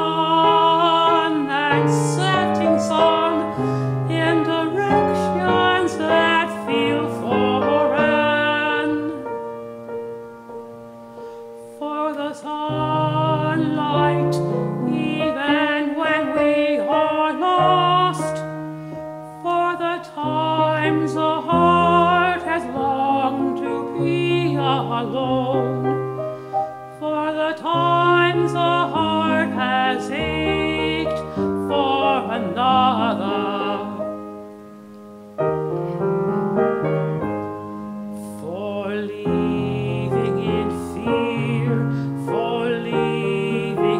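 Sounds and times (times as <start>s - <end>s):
man singing: 0.0s - 9.2s, 27.0s - 34.2s, 38.2s - 43.9s
grand piano accompaniment: 0.0s - 43.9s.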